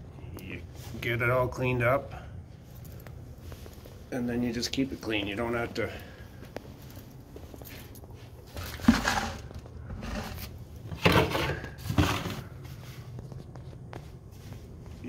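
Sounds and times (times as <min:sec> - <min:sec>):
footsteps scuffing on tile floor: 0:11.0 - 0:15.0.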